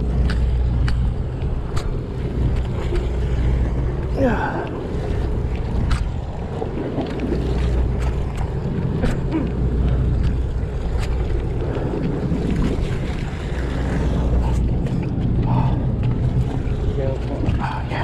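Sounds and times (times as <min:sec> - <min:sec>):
boat engine drone: 0:00.0 - 0:18.0
ocean water sloshing: 0:00.0 - 0:18.0
wind on microphone: 0:00.0 - 0:18.0.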